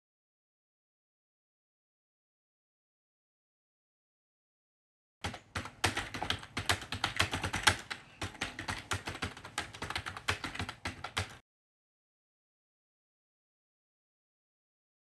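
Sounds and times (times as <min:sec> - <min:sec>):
keyboard typing: 0:05.2 - 0:11.4.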